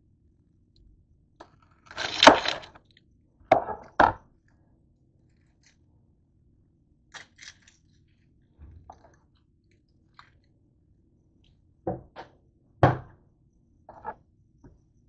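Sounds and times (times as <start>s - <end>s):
kitchen items knocking and clicking: 1.9s - 2.8s, 3.5s - 4.2s, 11.9s - 13.2s
louder thuds on countertop: 11.9s - 13.2s.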